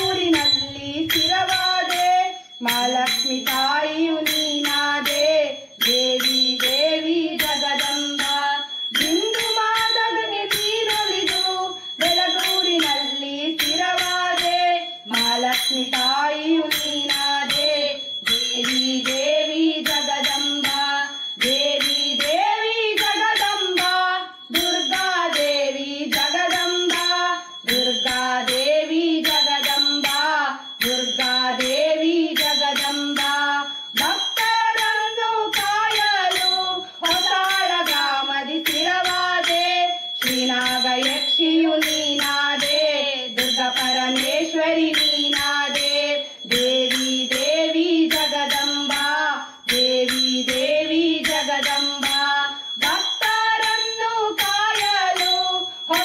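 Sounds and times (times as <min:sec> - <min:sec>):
steady percussion beat: 0:00.0 - 0:03.7
women singing devotional chant: 0:00.0 - 0:56.0.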